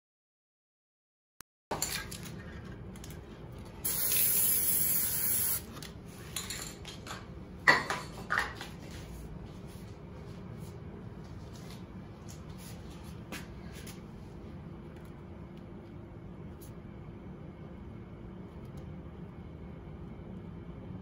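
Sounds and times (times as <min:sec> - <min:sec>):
spray can hissing: 0:03.8 - 0:05.7.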